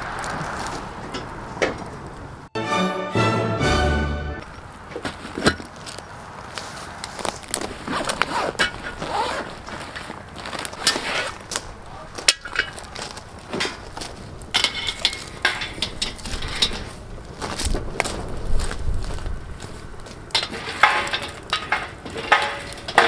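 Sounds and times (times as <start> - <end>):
case rustling: 7.1 - 11.6.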